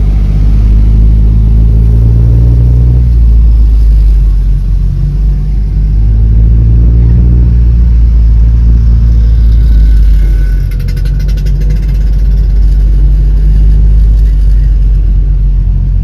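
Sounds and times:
car engine and road rumble: 0.0 - 16.0
rapid ticking: 9.2 - 15.0.

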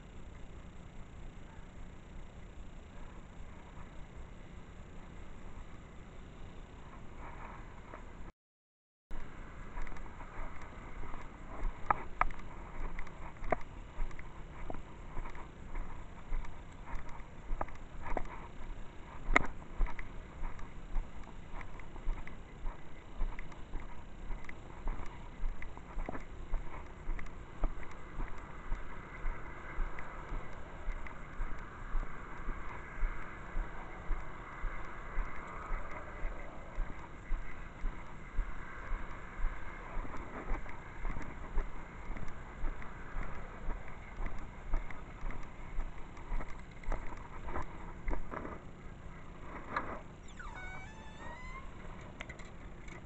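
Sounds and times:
footsteps walking: 9.2 - 32.6, 35.2 - 48.6.

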